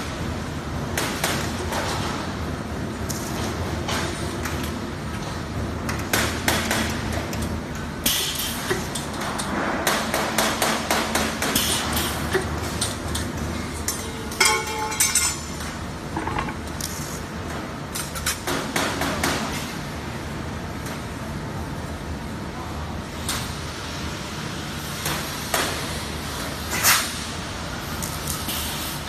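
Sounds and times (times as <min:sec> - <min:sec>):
low workshop hum: 0:00.0 - 0:29.0
metal parts clanking: 0:13.9 - 0:15.5, 0:16.1 - 0:16.7.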